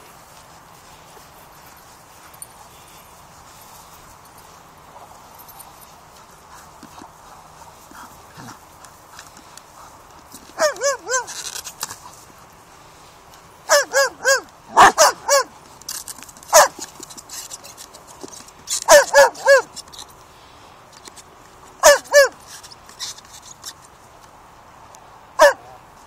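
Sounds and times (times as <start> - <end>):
dog barking: 10.6 - 11.3, 13.7 - 15.5, 16.5 - 16.8, 18.9 - 19.7, 21.8 - 22.4, 25.4 - 25.8.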